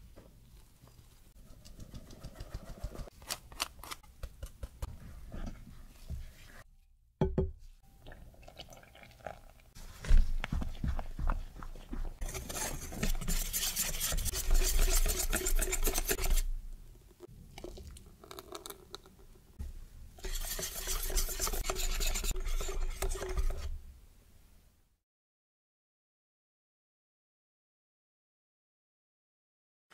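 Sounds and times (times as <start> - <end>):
spatula scraping and knocking: 12.1 - 16.5, 20.2 - 23.8
whisk scraping a glass bowl: 12.2 - 16.5, 20.2 - 23.8.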